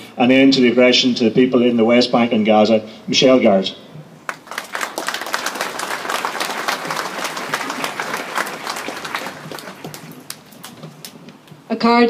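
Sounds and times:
crowd applauding: 4.3s - 11.3s.

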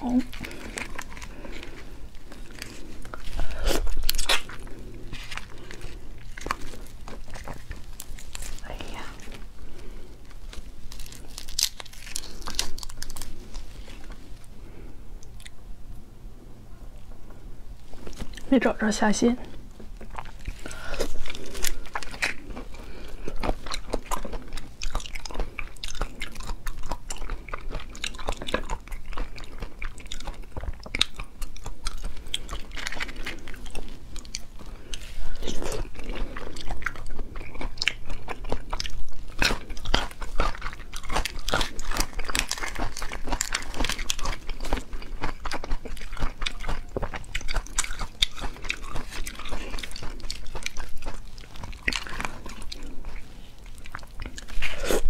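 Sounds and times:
crunchy bites: 0.0s - 14.5s, 19.6s - 55.0s
wet chewing and sucking: 0.0s - 15.6s, 17.8s - 18.5s, 19.4s - 55.0s.

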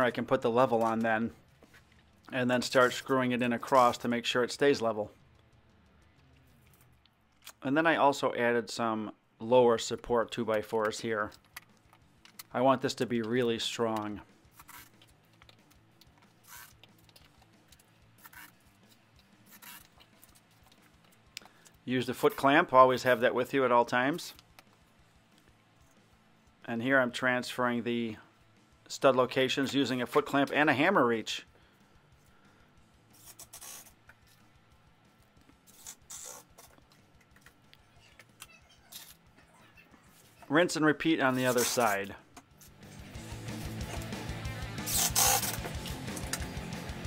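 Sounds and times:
hand tools scraping and rustling: 2.6s - 4.1s, 14.5s - 17.5s, 18.2s - 21.2s, 33.1s - 34.4s, 35.5s - 37.5s, 41.2s - 44.1s, 44.8s - 46.3s.

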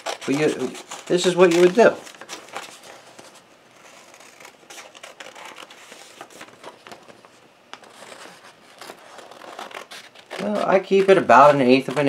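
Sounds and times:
scissors snipping paper: 0.0s - 2.7s, 7.8s - 12.0s
paper crinkling: 0.0s - 12.0s.

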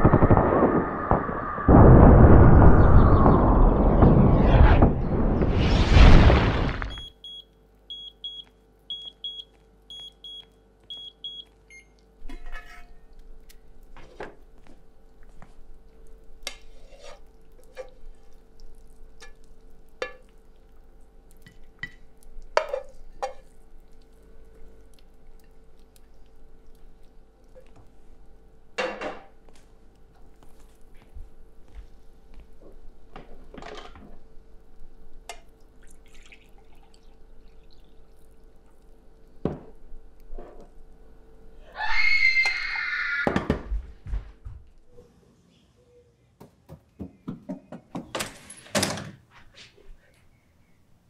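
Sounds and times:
oven timer beeping: 7.0s - 12.0s
spatula scraping frying pan: 16.5s - 18.0s.

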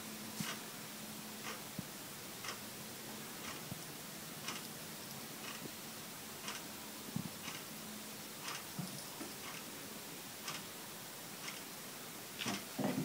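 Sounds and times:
faint steady hum: 0.0s - 13.0s
clock ticking: 2.4s - 2.6s, 4.4s - 4.7s, 6.4s - 6.7s, 7.4s - 7.7s, 8.4s - 8.7s, 10.4s - 10.7s.

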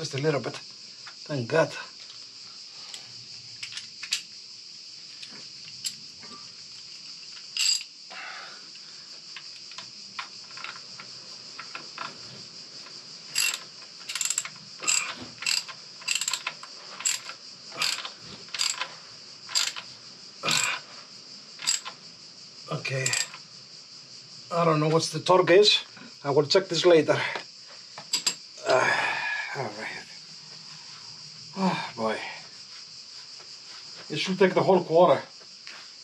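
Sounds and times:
ratchet wrench clicking: 7.6s - 7.9s, 13.3s - 18.9s, 19.5s - 19.9s, 20.5s - 20.8s, 21.6s - 22.0s, 23.0s - 23.4s.

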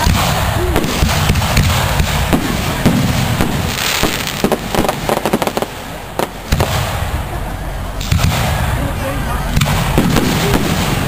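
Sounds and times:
firework pops: 0.0s - 7.0s, 9.6s - 11.0s
firework bangs: 0.0s - 11.0s.

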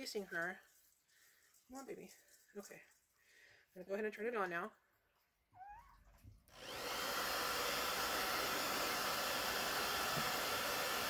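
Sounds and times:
hair dryer blowing air: 6.5s - 11.0s.

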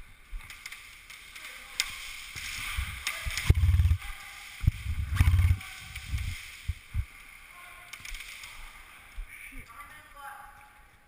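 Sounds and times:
low fluttering rumble: 2.8s - 4.0s, 4.6s - 7.1s.

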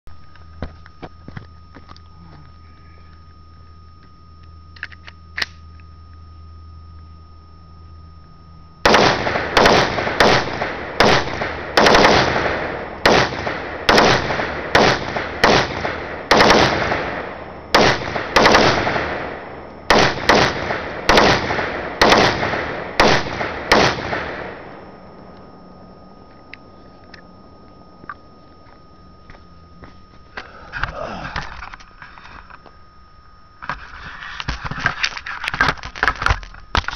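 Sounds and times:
rifle shots with echo: 8.8s - 24.8s.

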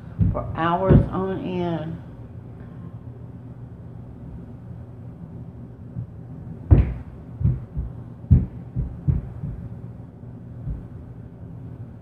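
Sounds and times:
heavy footsteps through ceiling: 0.0s - 1.3s, 5.9s - 9.9s, 10.6s - 11.1s.

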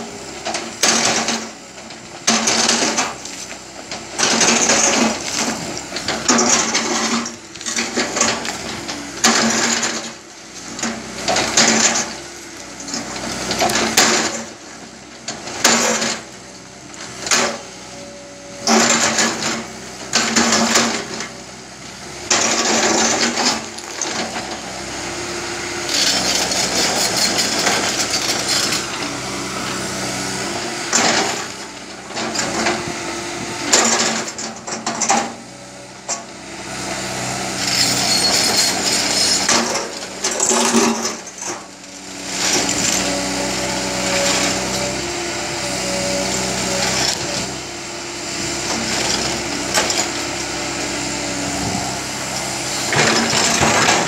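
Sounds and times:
excavator engine under load: 0.0s - 54.0s
rock scraping and clattering: 25.9s - 29.0s, 37.7s - 41.6s, 52.9s - 54.0s.

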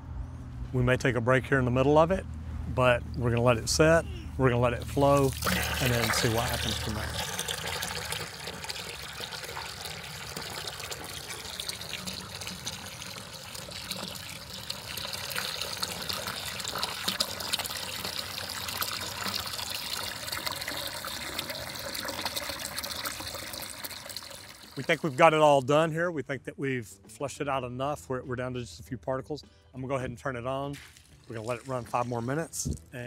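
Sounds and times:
hose water splashing into bucket: 4.6s - 25.8s, 30.7s - 32.8s.

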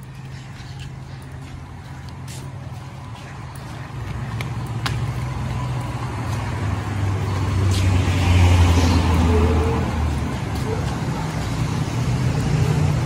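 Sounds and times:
car passing: 0.0s - 13.0s.

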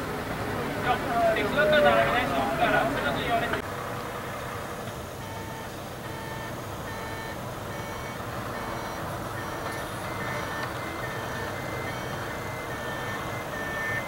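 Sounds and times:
electronic beeping tones: 5.2s - 14.0s.

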